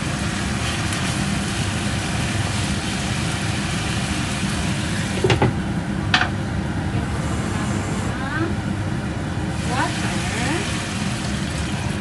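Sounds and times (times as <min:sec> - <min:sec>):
pork sizzling in oil: 0:00.0 - 0:05.4, 0:09.5 - 0:12.0.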